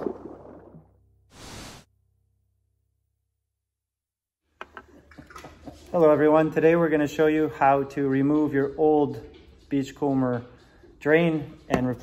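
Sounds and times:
short hissing whoosh: 1.3s - 1.9s.

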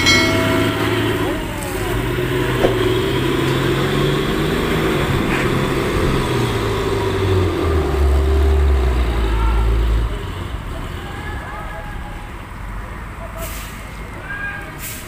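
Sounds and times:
heavy truck engine running: 0.0s - 15.0s.

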